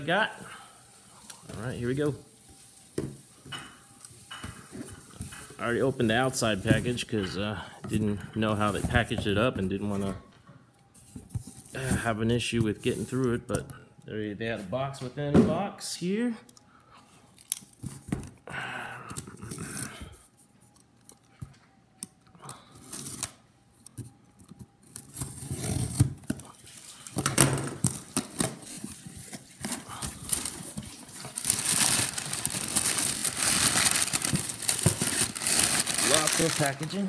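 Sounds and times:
packing paper crinkling: 27.8s - 37.0s.

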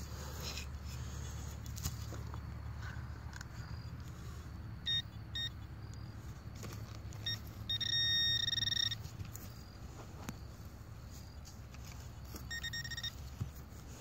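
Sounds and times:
metal detector steady tone: 3.3s - 14.0s
metal detector beeps: 4.8s - 6.1s, 7.1s - 9.8s, 12.3s - 13.4s.

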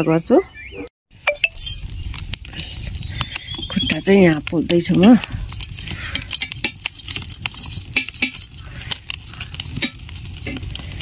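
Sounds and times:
fire rumbling: 1.1s - 11.0s
metal tongs clicking and scraping: 4.4s - 10.8s.

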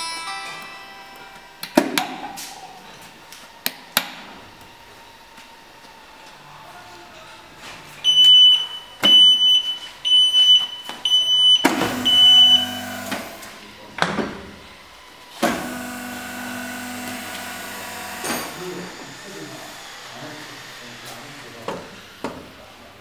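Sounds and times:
control unit beeping: 8.0s - 13.0s
hydraulic pump running: 11.6s - 22.9s.

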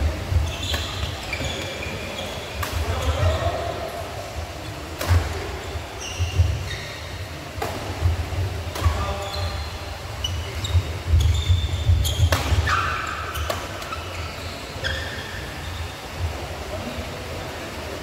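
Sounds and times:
shoes squeaking on court floor: 0.3s - 3.8s, 5.6s - 7.4s, 8.8s - 16.2s
racquets hitting shuttlecock: 5.0s - 5.5s, 11.9s - 14.0s.

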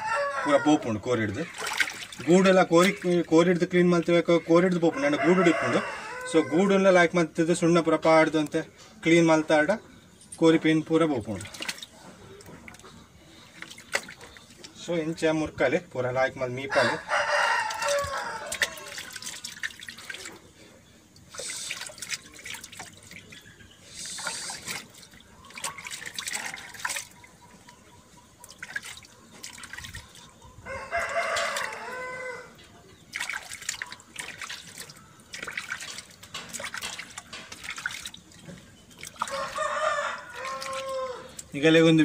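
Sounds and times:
rooster crowing: 0.0s - 0.9s, 4.8s - 6.8s, 16.6s - 19.2s, 30.6s - 32.6s, 39.2s - 41.4s
water splashing in a bucket: 0.6s - 5.6s, 10.5s - 15.4s, 17.5s - 32.3s, 32.9s - 42.0s.

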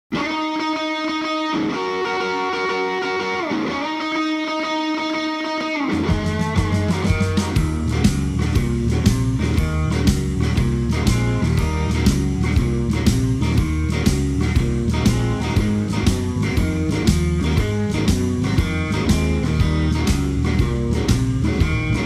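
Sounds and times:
electric guitar sustained notes: 0.1s - 22.0s
bass line: 5.9s - 22.0s
steady drum beat: 5.9s - 22.0s.

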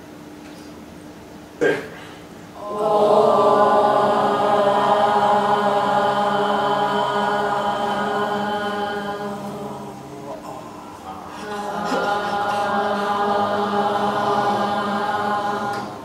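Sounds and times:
students chanting a vowel: 2.6s - 16.0s.

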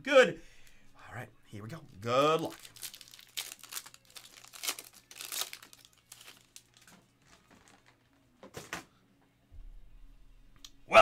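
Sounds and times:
foil wrapper crinkling and tearing: 2.3s - 8.0s.

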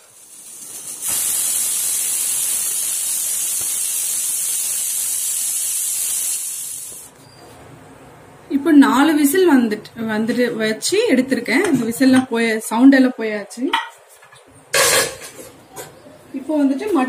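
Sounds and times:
pressure cooker steam hissing: 0.0s - 7.1s.

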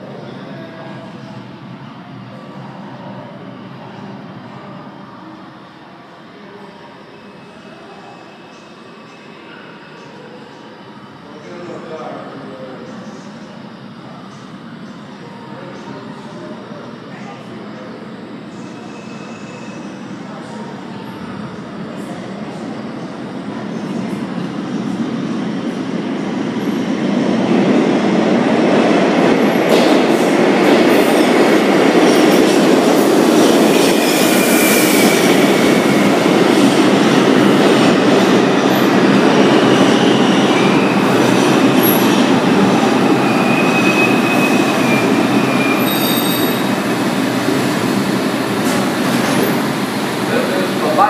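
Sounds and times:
subway train braking: 0.0s - 51.0s
wheel squeals: 43.2s - 46.6s.

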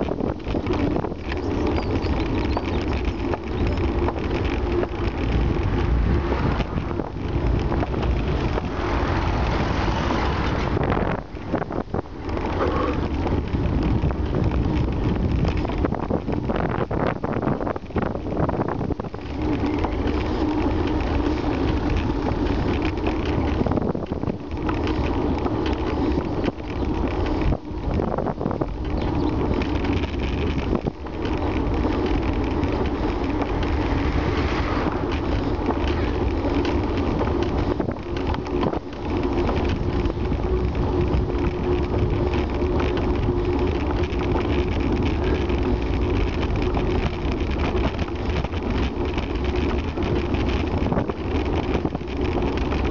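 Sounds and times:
tyres rumbling on tarmac: 0.0s - 52.9s
wind buffeting microphone: 0.0s - 52.9s
car passing: 5.0s - 13.4s, 31.6s - 38.0s.

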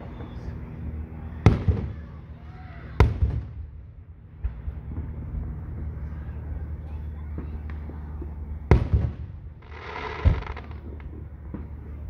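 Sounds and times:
firework shells bursting: 9.6s - 11.1s.

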